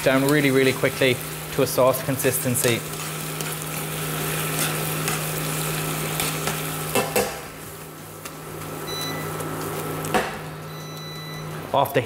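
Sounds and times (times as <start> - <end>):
food sizzling in frying pan: 0.0 - 11.7
faint beep: 10.7 - 11.5.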